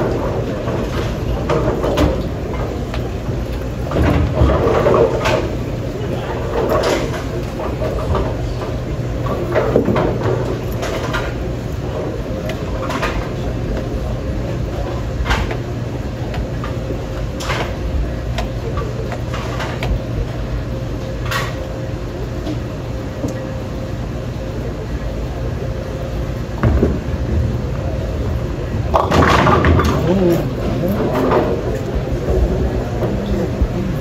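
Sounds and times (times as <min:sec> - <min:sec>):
rumble of lane machinery: 0:00.0 - 0:34.0.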